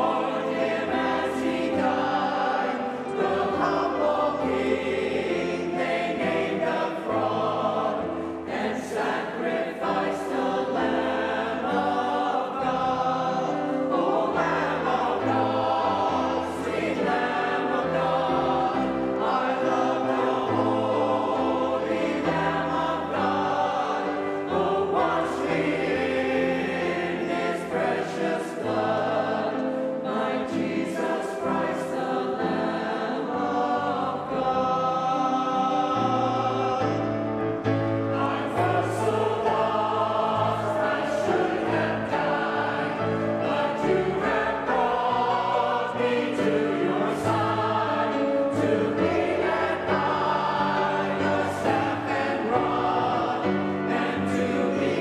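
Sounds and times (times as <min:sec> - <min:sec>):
choir singing gospel music: 0:00.0 - 0:55.0.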